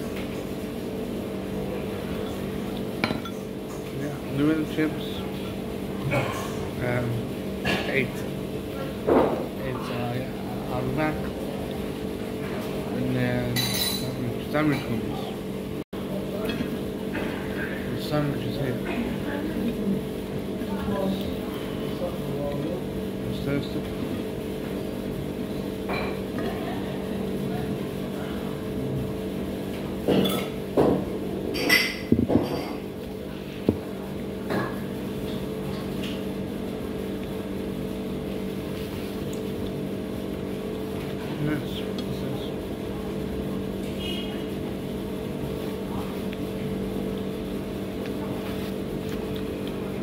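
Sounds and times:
steady low hum: 0.0s - 50.0s
dishes and cutlery clinking: 3.0s - 3.8s, 13.5s - 14.9s.

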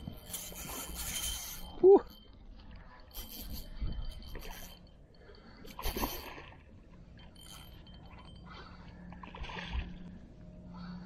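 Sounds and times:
faint low hum: 0.0s - 11.0s
water splashing and sloshing: 0.0s - 11.0s.

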